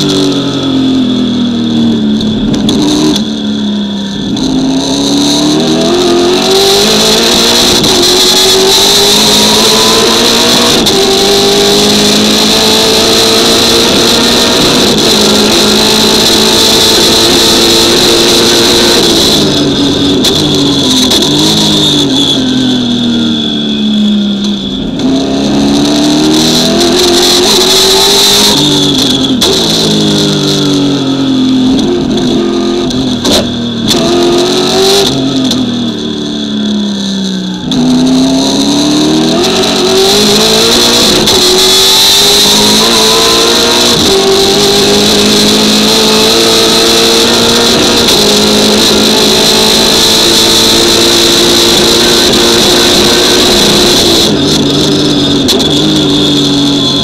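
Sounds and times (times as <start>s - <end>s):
racing car engine revving: 0.0s - 57.0s
steady high whine: 0.0s - 57.0s.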